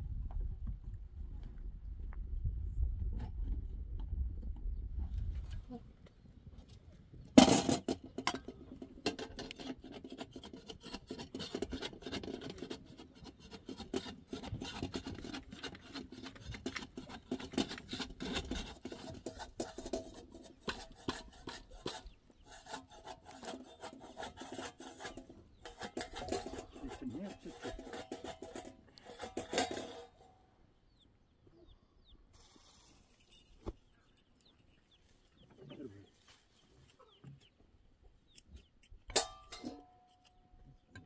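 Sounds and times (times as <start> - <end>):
sharp scrape or knock: 9.2 - 30.2
flatbread scraping on griddle: 9.3 - 30.2.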